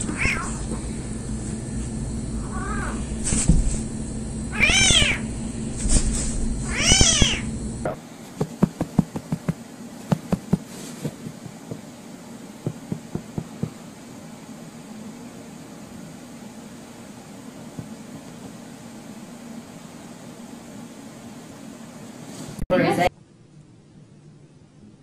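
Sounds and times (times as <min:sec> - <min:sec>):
cat meowing: 0:00.1 - 0:00.7, 0:02.4 - 0:03.0, 0:04.5 - 0:05.2, 0:06.7 - 0:07.5.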